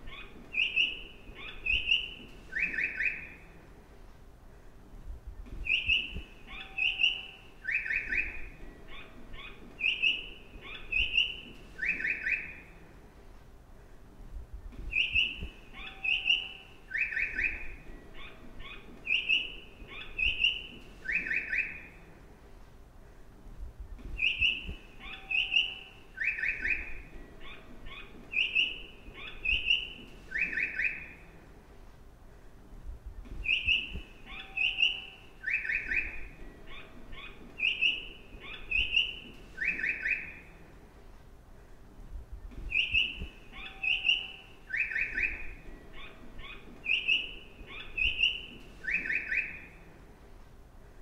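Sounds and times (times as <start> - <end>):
recorded bird chirps from speaker: 0.0 - 3.6, 5.6 - 12.8, 14.9 - 22.0, 24.1 - 31.3, 33.4 - 40.6, 42.5 - 49.9
faint low rumble: 0.0 - 21.1, 21.7 - 30.4, 31.0 - 39.6, 40.3 - 48.9.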